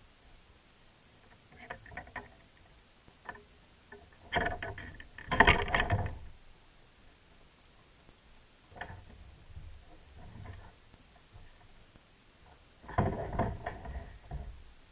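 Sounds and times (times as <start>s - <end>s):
fishing gear knocks and rattles: 4.2s - 6.3s.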